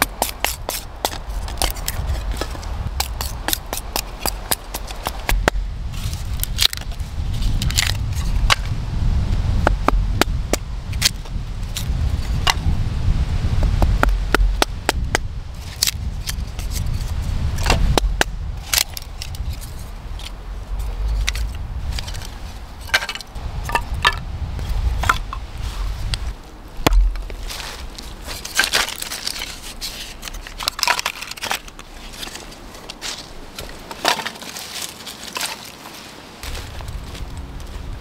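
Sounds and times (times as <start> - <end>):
hatchet chopping kindling: 0.0 - 6.9, 13.6 - 16.0, 26.8 - 27.7
low rumble: 5.2 - 28.0.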